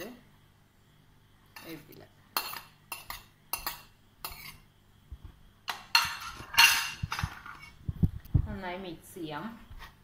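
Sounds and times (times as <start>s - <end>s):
metal utensils clinking: 5.7s - 7.7s
utensils clattering: 5.7s - 7.8s.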